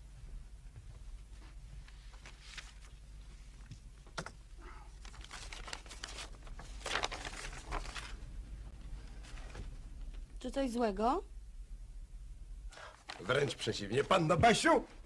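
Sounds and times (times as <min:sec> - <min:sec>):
paper crinkling and rustling: 0:01.8 - 0:03.8, 0:04.9 - 0:10.2, 0:12.9 - 0:14.2.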